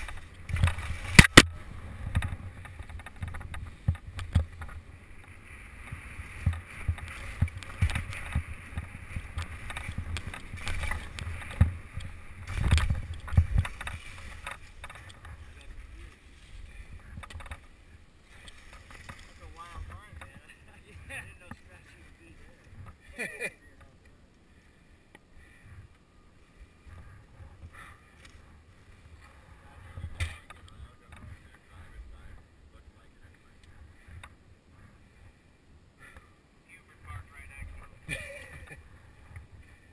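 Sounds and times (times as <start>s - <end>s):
faint clicks and knocks: 0.0s - 16.2s, 16.9s - 21.9s, 30.0s - 31.6s
skis scraping over snow: 0.0s - 17.2s
wind on microphone: 0.0s - 21.4s.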